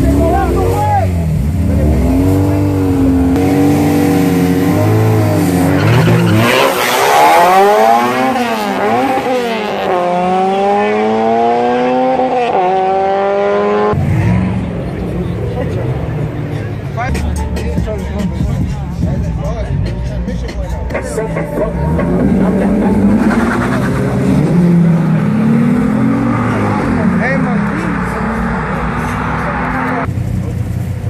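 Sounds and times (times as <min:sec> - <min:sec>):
car engine revving: 0:00.0 - 0:31.0
tyre squeal: 0:05.6 - 0:07.6.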